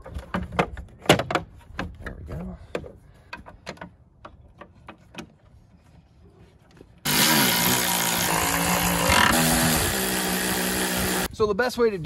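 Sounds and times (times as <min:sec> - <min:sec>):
power driver motor whine: 0:07.1 - 0:11.3.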